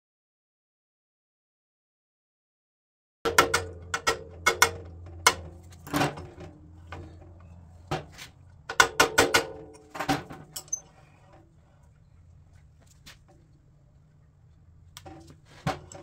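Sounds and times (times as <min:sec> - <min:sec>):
hammer tapping metal punch: 0:03.3 - 0:05.5, 0:08.7 - 0:09.9.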